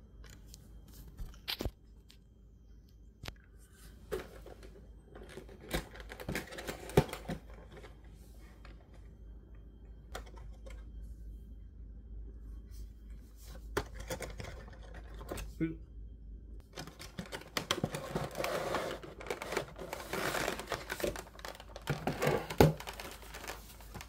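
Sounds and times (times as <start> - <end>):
packaging rustling and scraping: 3.8 - 9.0, 16.8 - 24.0.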